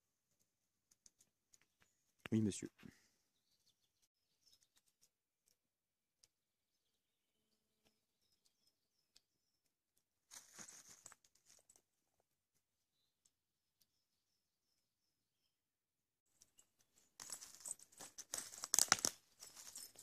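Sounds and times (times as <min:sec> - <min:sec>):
faint bird chirps: 0:01.5 - 0:05.1, 0:06.6 - 0:09.8, 0:12.8 - 0:15.6
brief rustle: 0:10.3 - 0:11.8.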